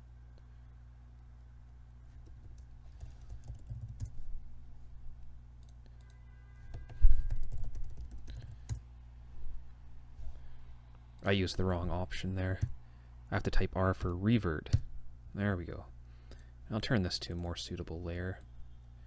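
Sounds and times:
steady low hum: 0.0 - 19.0
typing on computer keyboard: 2.2 - 4.2, 5.6 - 8.8.

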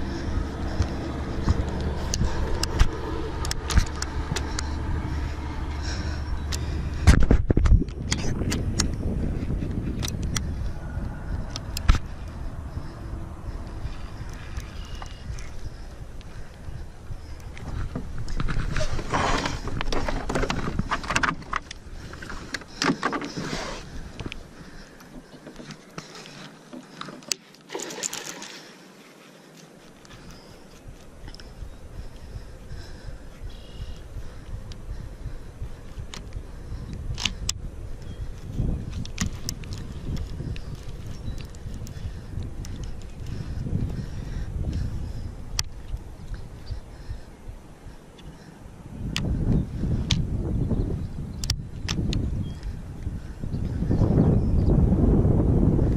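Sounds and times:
low motor hum: 0.0 - 26.1
fishing reel clicks and knocks: 2.1 - 4.7.

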